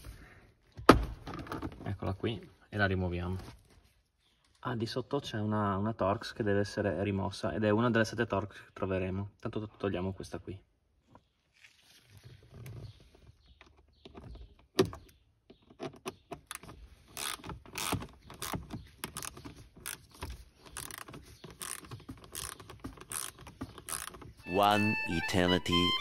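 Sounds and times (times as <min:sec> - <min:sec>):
hand ratchet clicking: 0:16.5 - 0:20.1, 0:20.7 - 0:24.3.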